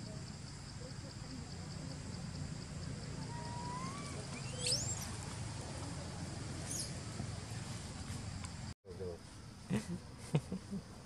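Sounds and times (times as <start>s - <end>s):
birds whistling: 3.2s - 5.2s
high bird chirp: 3.3s - 5.2s.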